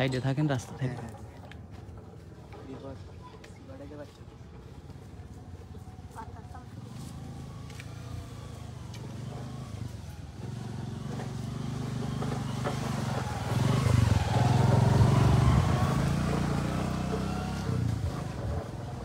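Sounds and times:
passing vehicle engine: 0:04.6 - 0:19.0.

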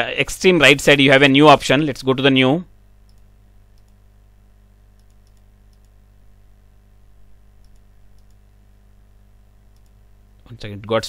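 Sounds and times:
low electrical hum: 0:00.0 - 0:11.0
computer mouse clicks: 0:03.1 - 0:04.0, 0:05.0 - 0:06.0, 0:07.6 - 0:08.5, 0:09.7 - 0:10.0.

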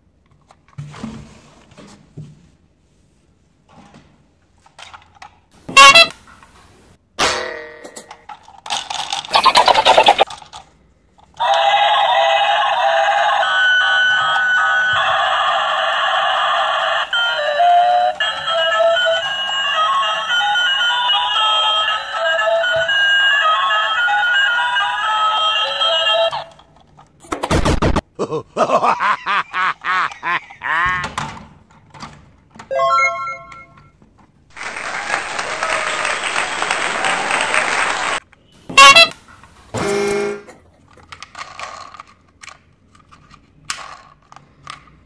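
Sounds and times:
tinny electronic toy melody: 0:11.5 - 0:26.5, 0:32.7 - 0:33.9.

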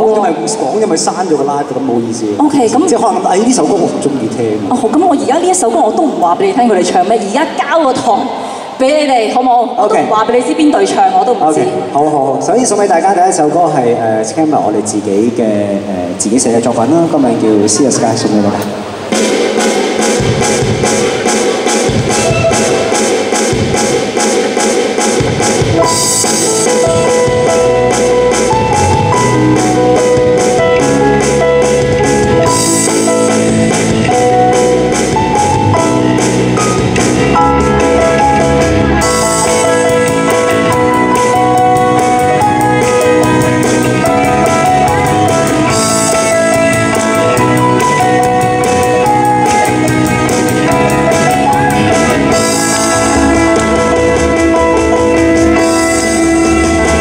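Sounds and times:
keyboards: 0:00.0 - 0:57.0
drum kit with cymbals: 0:18.9 - 0:57.0.

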